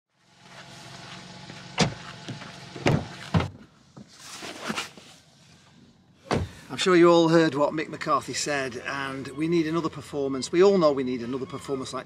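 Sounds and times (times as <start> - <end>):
car doors shutting: 1.4 - 3.7, 6.2 - 6.7.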